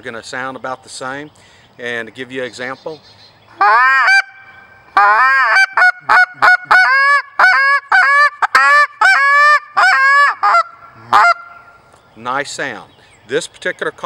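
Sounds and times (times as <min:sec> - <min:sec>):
goose call honks and clucks: 0:03.6 - 0:04.4, 0:05.0 - 0:11.7.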